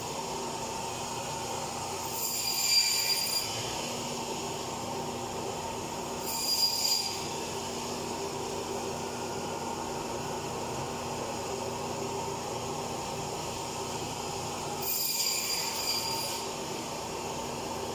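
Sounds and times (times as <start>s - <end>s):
bandsaw blade cutting meat: 2.1s - 3.7s.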